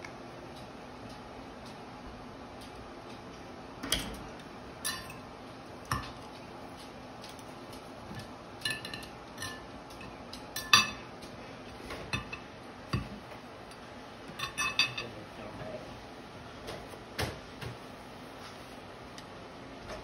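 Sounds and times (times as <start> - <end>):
cutlery clinking on a plate: 8.6 - 11.1, 14.4 - 15.1.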